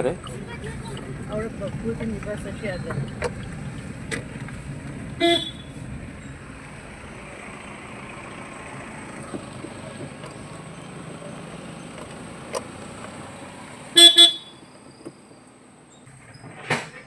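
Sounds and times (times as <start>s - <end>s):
car engine rumble: 0.0s - 17.0s
short car horn toot: 5.2s - 5.7s, 14.0s - 14.6s.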